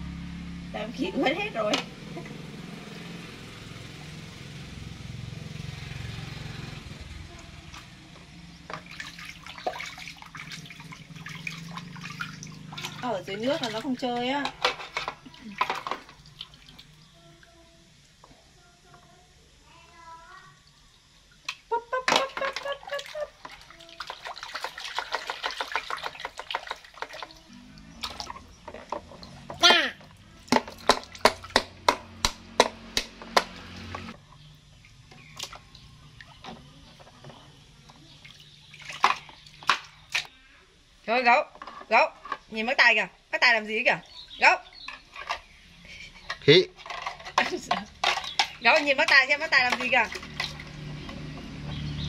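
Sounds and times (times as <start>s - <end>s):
water sloshing in plastic basin: 7.6s - 17.2s, 21.4s - 40.3s, 41.2s - 52.0s
plastic toys knocking: 30.5s - 33.5s, 46.2s - 51.2s.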